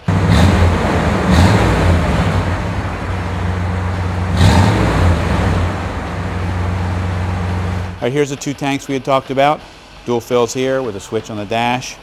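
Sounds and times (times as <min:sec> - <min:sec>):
engine idling and revving: 0:00.0 - 0:08.0.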